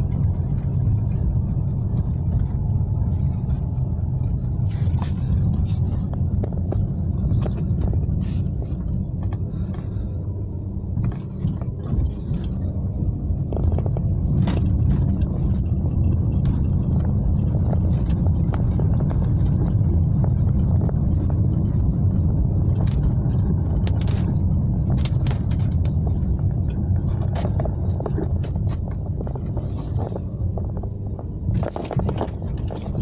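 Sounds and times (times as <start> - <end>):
car engine and tyres rumble: 0.0 - 33.0
rain taps on car: 11.0 - 33.0.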